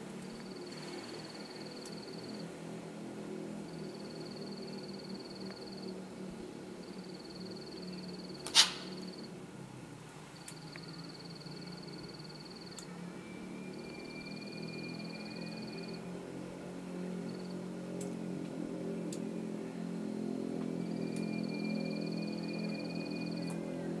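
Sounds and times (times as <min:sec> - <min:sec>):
steady low hum: 0:00.0 - 0:24.0
sharp loud click: 0:08.4 - 0:09.0
faint ticks: 0:10.4 - 0:10.9.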